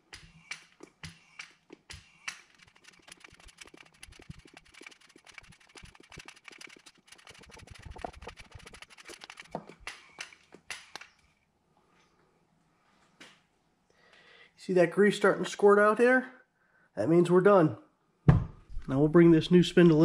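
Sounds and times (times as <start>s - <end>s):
grease gun clicking: 0.0s - 11.2s.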